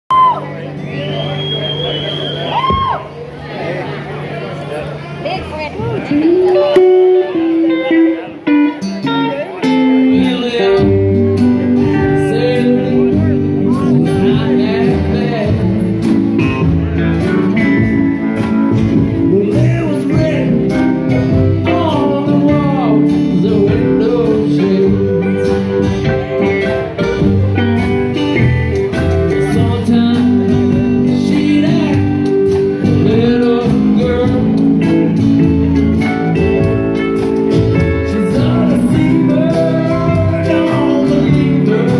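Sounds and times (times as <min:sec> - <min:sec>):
live band playing: 0:00.1 - 0:41.9.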